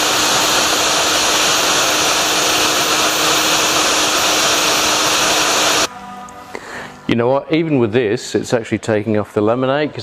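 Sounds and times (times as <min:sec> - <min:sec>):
angle grinder grinding: 0:00.0 - 0:05.9.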